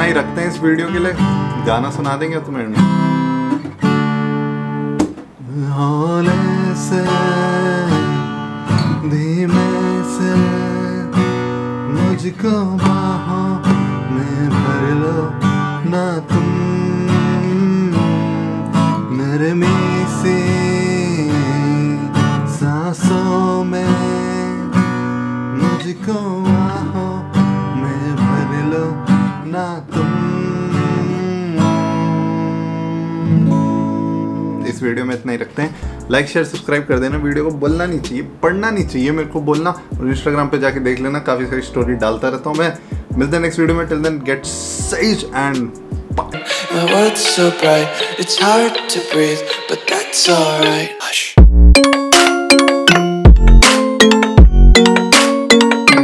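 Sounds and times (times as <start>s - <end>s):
acoustic guitar strumming: 0.0s - 34.8s, 44.8s - 56.0s
man singing: 5.4s - 24.7s, 25.6s - 33.6s, 43.1s - 51.4s.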